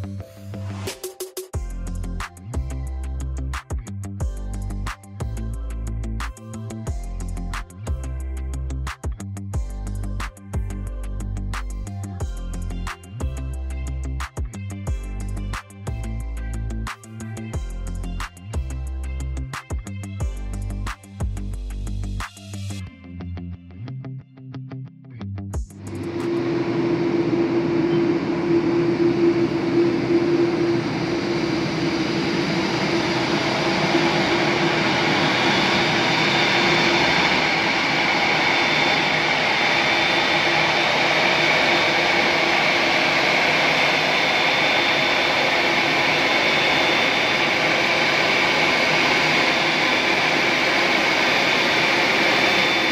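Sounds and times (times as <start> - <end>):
jet engines roaring with whine: 25.8 - 52.9.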